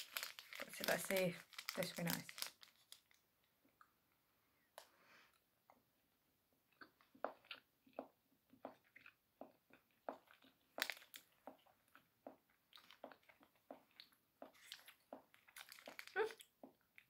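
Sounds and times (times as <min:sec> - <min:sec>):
foil wrapper crinkling: 0:00.0 - 0:03.2, 0:10.8 - 0:11.2, 0:14.6 - 0:16.4
soft chewing: 0:06.7 - 0:17.0.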